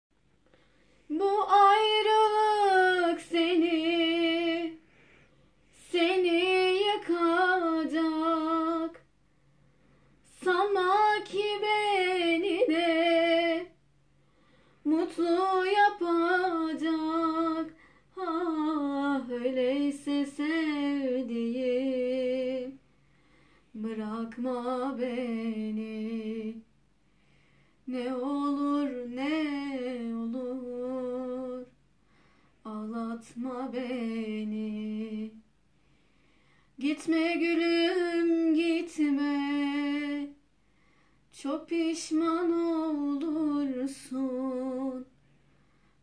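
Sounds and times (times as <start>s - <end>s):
woman singing unaccompanied: 1.0s - 4.9s, 5.7s - 9.1s, 10.2s - 13.8s, 14.8s - 22.8s, 23.7s - 26.7s, 27.8s - 31.8s, 32.6s - 35.5s, 36.8s - 40.4s, 41.3s - 45.1s.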